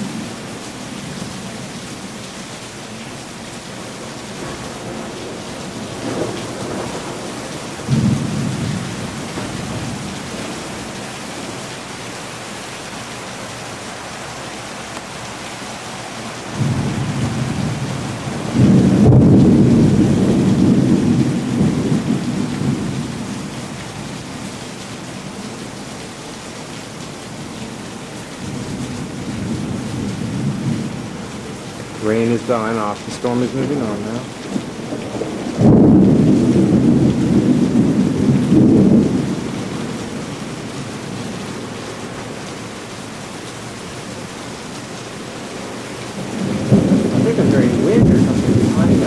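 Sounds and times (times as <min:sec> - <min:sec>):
rain hissing: 0:00.0 - 0:49.0
distant thunder rolls: 0:04.4 - 0:11.0, 0:16.5 - 0:23.3, 0:31.8 - 0:40.4, 0:46.2 - 0:49.0.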